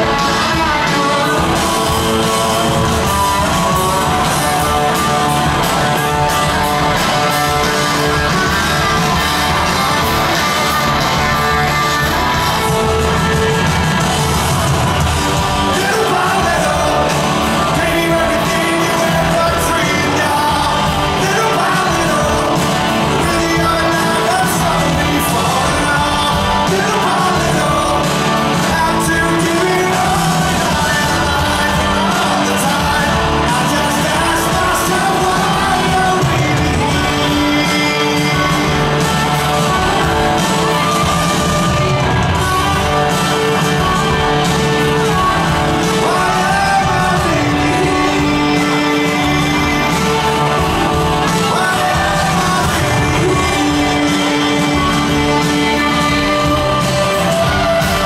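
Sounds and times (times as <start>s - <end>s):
crowd shouting and singing along: 0.0s - 58.0s
live rock band playing: 0.0s - 58.0s
person singing: 0.0s - 58.0s.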